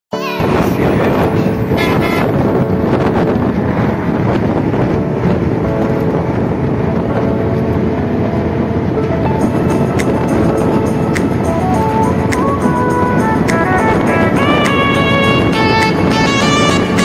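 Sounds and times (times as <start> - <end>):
wind buffeting microphone: 0.3 - 17.0
road vehicle running: 0.6 - 17.0.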